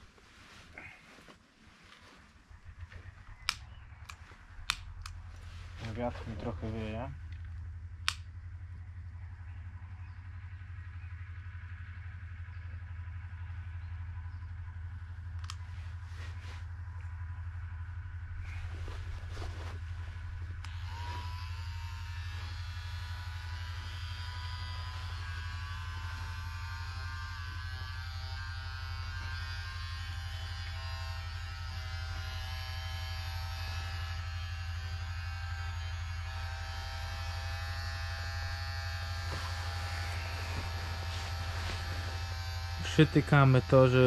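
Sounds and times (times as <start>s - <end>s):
electric blower humming and whining: 15.3s - 44.0s.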